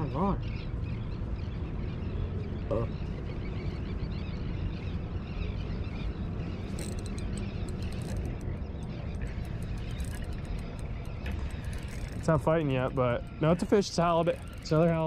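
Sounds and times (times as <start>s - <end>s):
wind: 0.0s - 15.0s
water at rocky shoreline: 6.6s - 15.0s.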